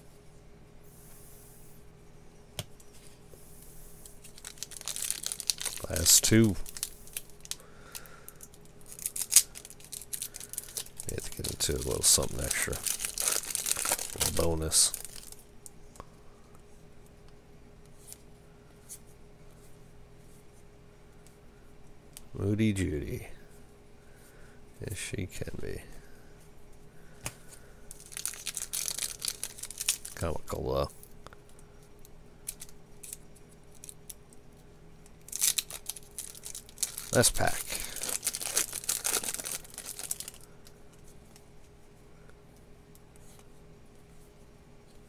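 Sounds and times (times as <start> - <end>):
thin steady hum: 0.0 - 45.0
wrapper crinkling rip: 4.2 - 15.4, 27.9 - 30.3, 35.2 - 40.5
wrapper rustling: 4.2 - 15.5, 27.9 - 30.6, 35.2 - 40.7.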